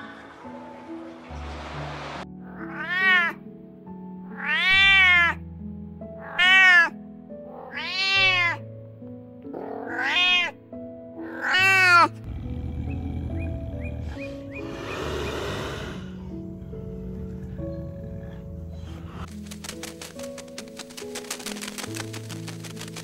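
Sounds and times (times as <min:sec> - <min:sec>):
soft background music: 0:00.0 - 0:23.0
cat meowing: 0:02.5 - 0:03.4, 0:04.4 - 0:05.4, 0:06.2 - 0:08.6, 0:09.6 - 0:10.6, 0:11.3 - 0:12.1.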